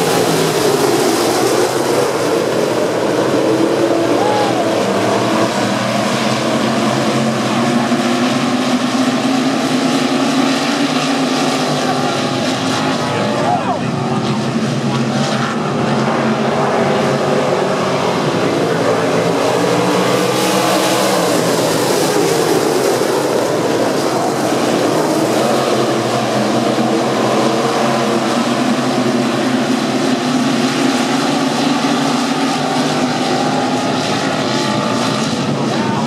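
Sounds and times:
race car engines passing: 0.0s - 36.0s.

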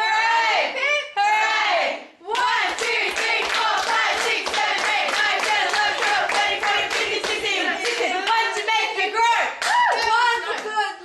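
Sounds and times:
group clapping in rhythm: 2.2s - 10.8s.

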